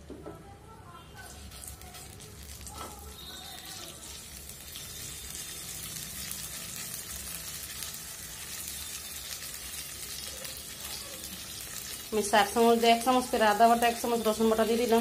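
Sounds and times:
spatula stirring in pan: 1.2s - 12.1s
paste sizzling in hot oil: 1.2s - 15.0s.

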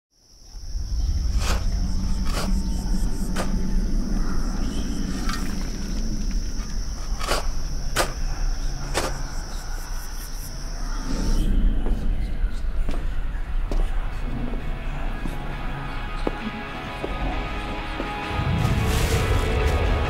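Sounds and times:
crickets chirring: 0.2s - 18.4s
low rumble: 0.6s - 8.9s.

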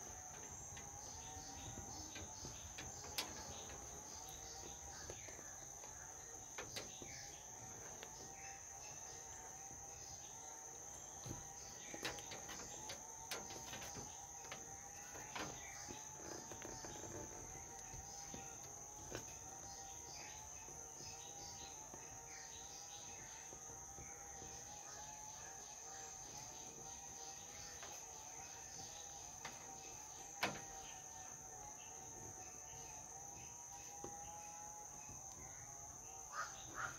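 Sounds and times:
cricket trill: 0.0s - 36.9s.

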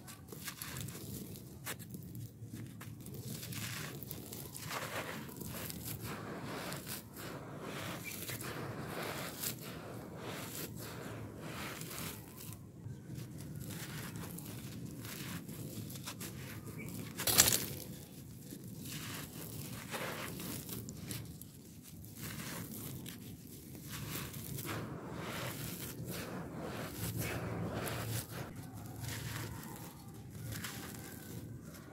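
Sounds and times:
gritty crunching of soil by hand: 0.0s - 31.9s
sharp loud crunch of soil: 13.6s - 21.4s, 22.1s - 31.9s.

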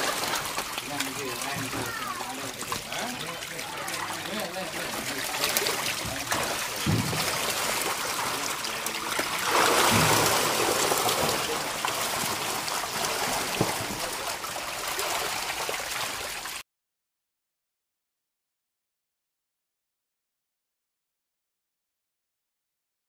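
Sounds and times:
fish splashing: 0.0s - 16.6s
water sloshing and trickling: 0.0s - 16.6s.

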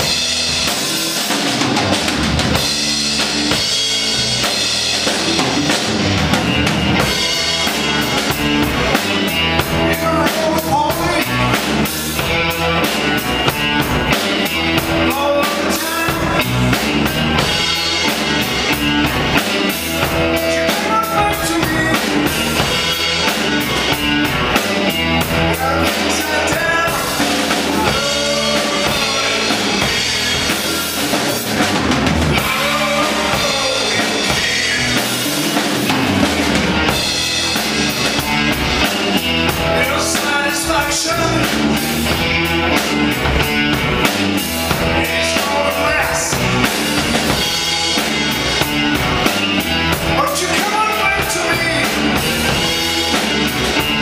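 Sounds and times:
bass guitar: 0.0s - 54.0s
drum kit beat: 0.0s - 54.0s
electric guitar: 0.0s - 54.0s.

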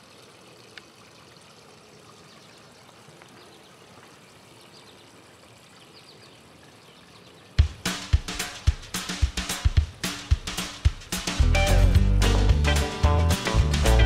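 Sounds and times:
water trickling: 0.0s - 8.2s.

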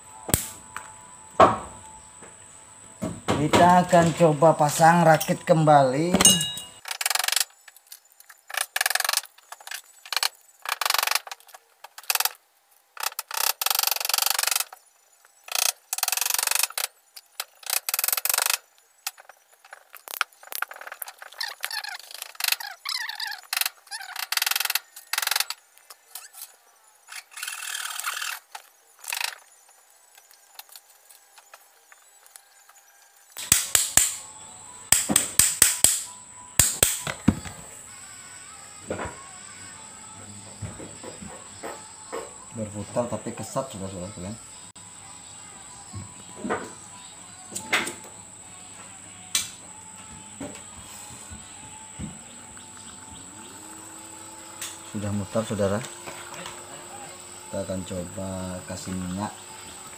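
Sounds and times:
metal motor parts clinking: 6.2s - 8.6s.

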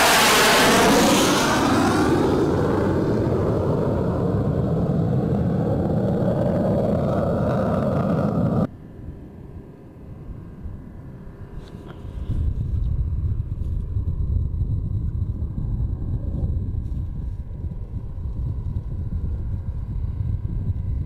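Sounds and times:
jet flying past: 0.0s - 8.7s.

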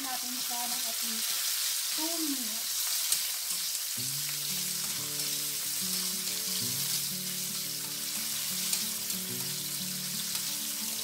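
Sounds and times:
peppers sizzling in hot oil: 0.0s - 11.0s
quiet background music: 4.0s - 11.0s.

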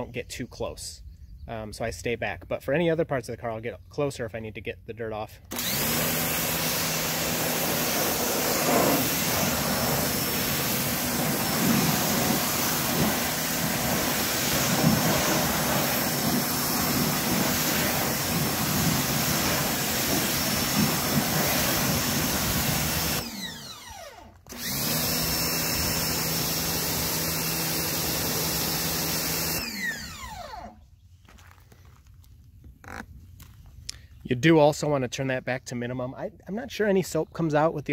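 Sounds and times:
pressure washer motor humming: 5.5s - 30.8s
water jet hissing on car: 6.4s - 23.2s.

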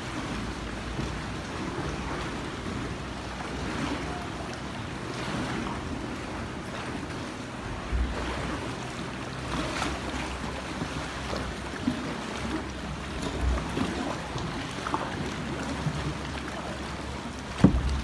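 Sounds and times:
water lapping and sloshing: 0.0s - 18.0s
wind rumbling on microphone: 17.0s - 18.0s.

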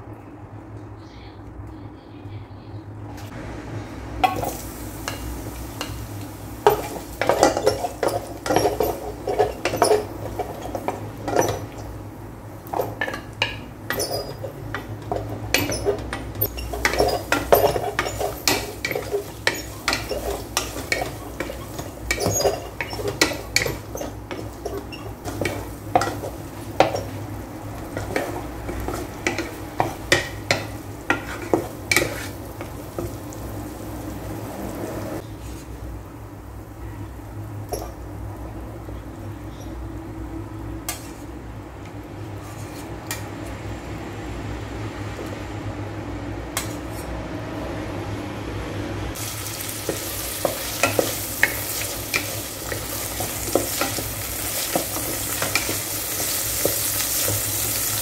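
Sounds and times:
faint sizzle: 1.0s - 41.7s, 49.2s - 58.0s
spatula scraping pot: 6.6s - 12.0s, 12.6s - 33.2s, 42.4s - 43.2s, 49.7s - 58.0s.

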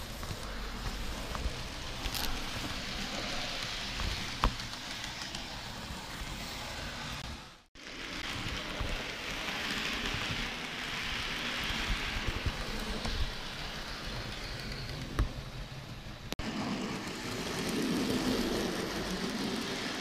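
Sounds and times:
model train wheels rattling: 1.7s - 6.1s, 7.8s - 15.9s.

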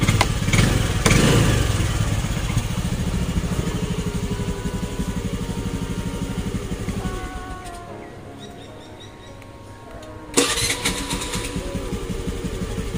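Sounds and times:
scooter engine revving and idling: 0.0s - 7.8s, 10.4s - 12.9s.

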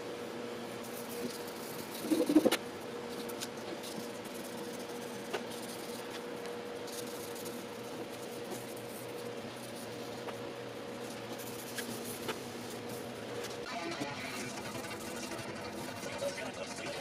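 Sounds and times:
steady low hum: 0.0s - 17.0s
sandpaper scratching metal: 13.7s - 17.0s.

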